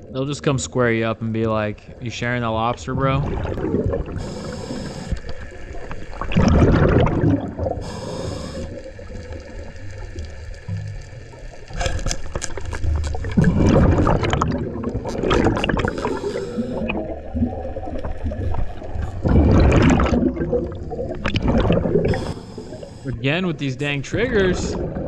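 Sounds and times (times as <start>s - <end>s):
bubbling exhalations underwater: 2.9s - 9.7s, 11.7s - 23.3s.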